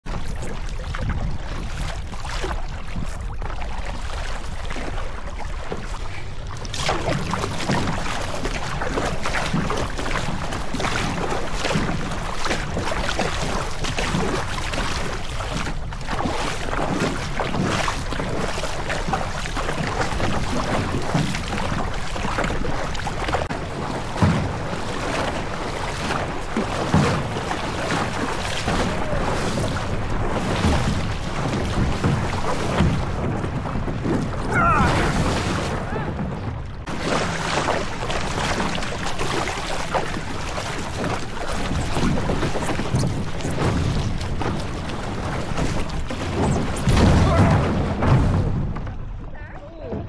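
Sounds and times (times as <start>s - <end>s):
wind buffeting microphone: 0.0s - 49.5s
water splashing and lapping: 0.0s - 50.0s.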